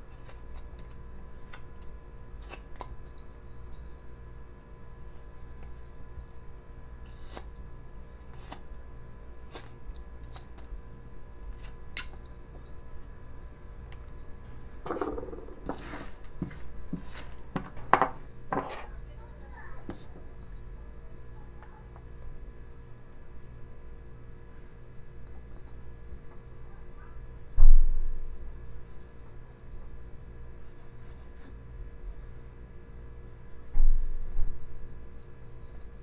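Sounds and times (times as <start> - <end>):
knife scraping cuts in wood: 7.0 - 7.5
knocks on wooden table: 14.8 - 15.8, 17.6 - 18.7.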